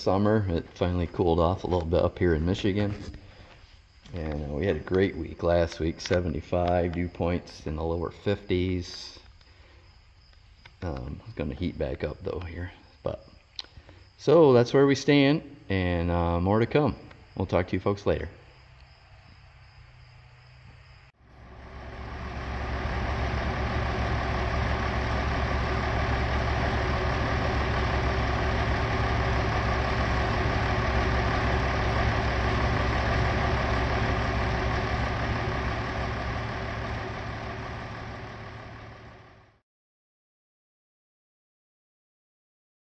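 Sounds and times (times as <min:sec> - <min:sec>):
tractor diesel engine idling: 0:00.0 - 0:03.4, 0:04.2 - 0:08.4, 0:21.2 - 0:39.6.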